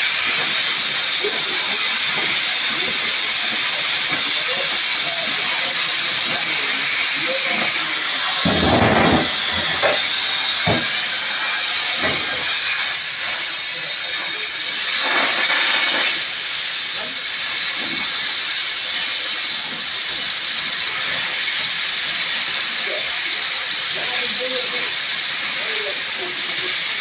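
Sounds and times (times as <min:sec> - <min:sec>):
cutting torch hissing: 0:00.0 - 0:27.0.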